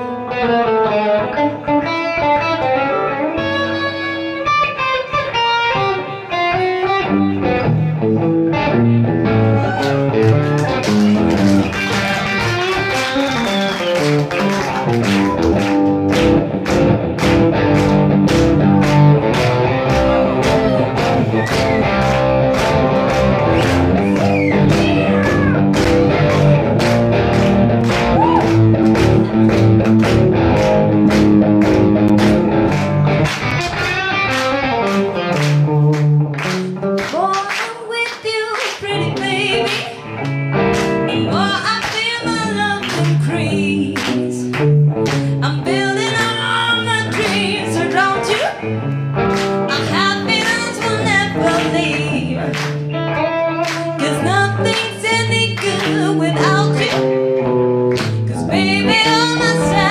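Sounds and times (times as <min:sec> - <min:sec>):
electric guitar jazzy blues line: 0:00.0 - 0:59.9
rhythmic handclapping: 0:09.7 - 0:59.9.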